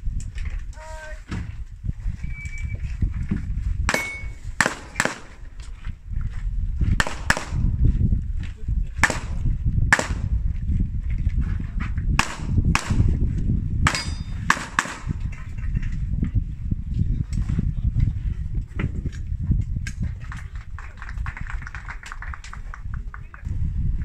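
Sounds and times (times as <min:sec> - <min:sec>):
wind rumbling on microphone: 0:00.0 - 0:24.0
short high beep: 0:02.2 - 0:02.8
pistol shots: 0:03.9 - 0:05.4, 0:07.0 - 0:07.6, 0:09.0 - 0:10.3, 0:12.2 - 0:13.1, 0:13.9 - 0:15.2.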